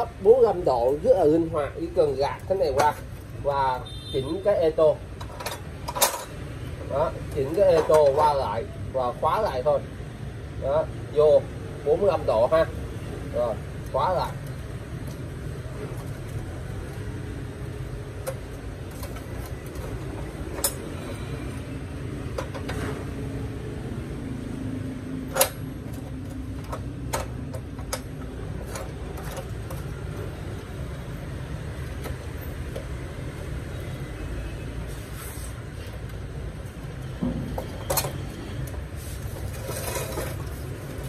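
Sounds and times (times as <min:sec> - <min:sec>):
metal clicks and clanks: 0:05.1 - 0:06.5, 0:07.2 - 0:08.3, 0:18.1 - 0:21.2, 0:22.2 - 0:23.1, 0:25.2 - 0:30.3, 0:37.2 - 0:38.8.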